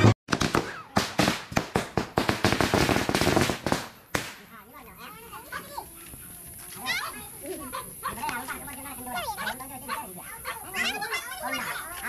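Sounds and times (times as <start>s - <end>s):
firecrackers cracking: 0.0s - 4.7s
faint voices: 4.4s - 12.0s.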